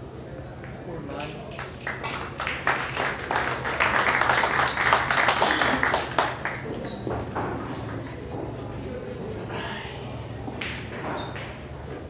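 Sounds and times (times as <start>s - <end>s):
audience applauding: 1.8s - 6.7s.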